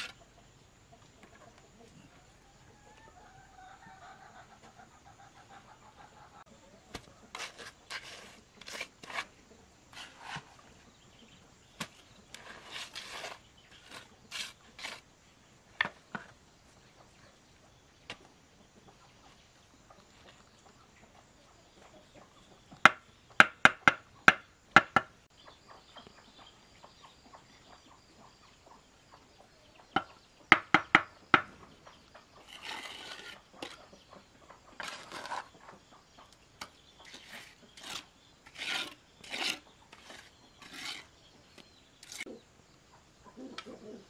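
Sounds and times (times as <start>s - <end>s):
trowel scraping wet mortar: 0.0s - 0.2s, 6.9s - 10.7s, 11.8s - 15.1s, 32.4s - 33.9s, 34.8s - 35.6s, 36.6s - 41.2s, 42.0s - 42.3s.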